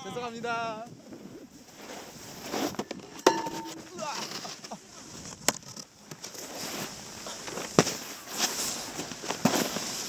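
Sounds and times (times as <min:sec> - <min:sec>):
snowboard scraping over snow: 0:01.2 - 0:02.9, 0:06.4 - 0:10.0
snowboard landing smack: 0:07.6 - 0:08.6, 0:09.3 - 0:09.8.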